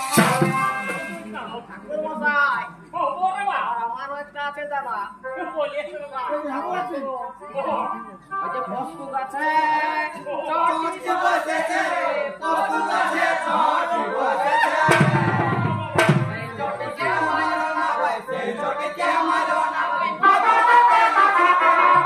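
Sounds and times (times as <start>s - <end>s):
voices singing together: 8.7s - 22.0s.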